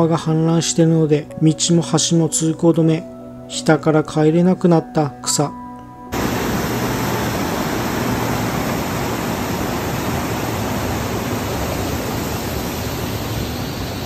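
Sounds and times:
river water rushing: 6.2 - 14.0.

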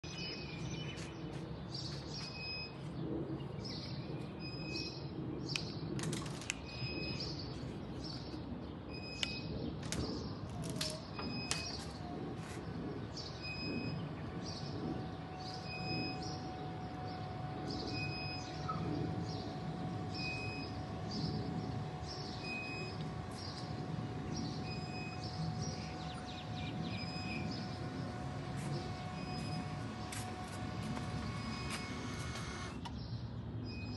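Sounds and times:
bird chirping: 6.5 - 33.9
electric actuator hum: 9.0 - 33.0.

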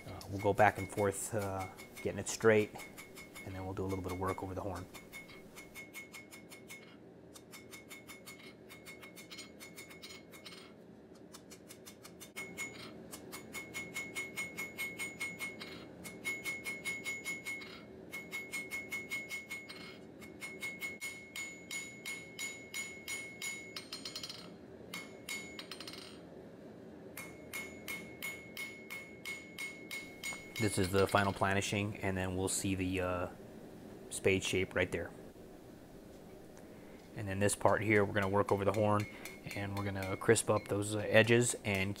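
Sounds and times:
hammer striking steel on anvil: 0.1 - 10.0, 11.8 - 26.1, 27.2 - 31.5, 37.5 - 41.9
anvil ringing: 13.5 - 26.2, 27.2 - 31.4, 37.7 - 41.4.

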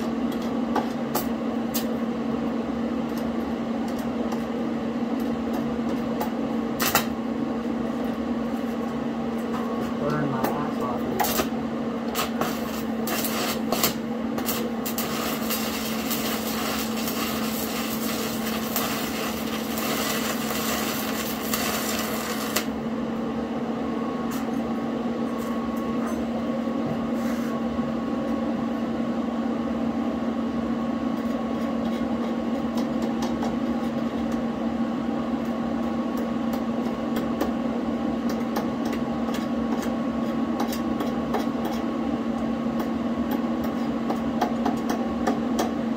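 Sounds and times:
steady hum: 0.0 - 31.5
welding arc crackling: 6.8 - 7.2, 11.2 - 22.8.

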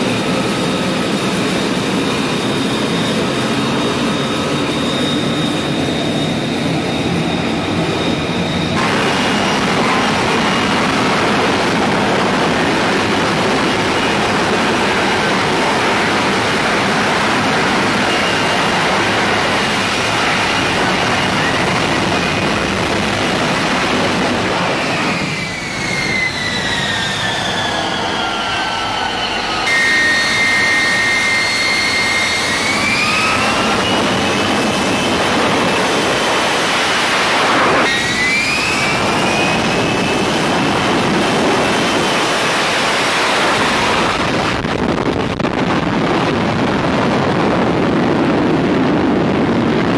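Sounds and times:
jet engine roaring: 0.0 - 49.9
whine falling in pitch: 4.6 - 46.9.

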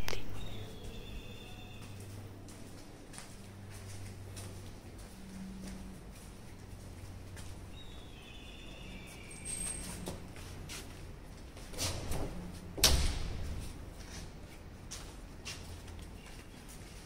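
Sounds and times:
high bird calls: 0.3 - 2.0.

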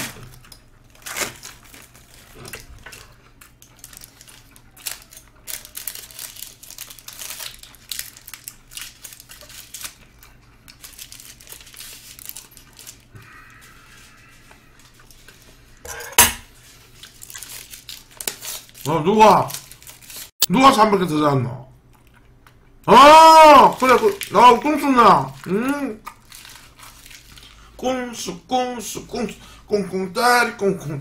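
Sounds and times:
wrapper crinkling and tearing: 0.0 - 13.1, 16.5 - 20.4, 22.9 - 27.7.

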